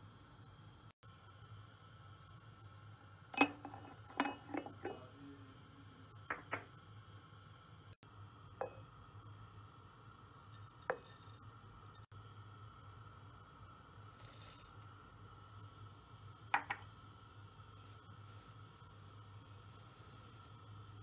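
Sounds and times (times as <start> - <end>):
ceramic clinks: 3.3 - 5.0, 10.6 - 12.0.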